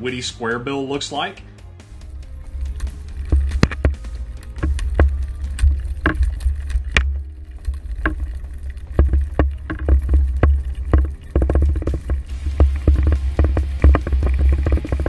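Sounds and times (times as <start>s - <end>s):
low rumble of moving water: 1.9s - 15.0s
lure rattle knocking underwater: 2.0s - 15.0s.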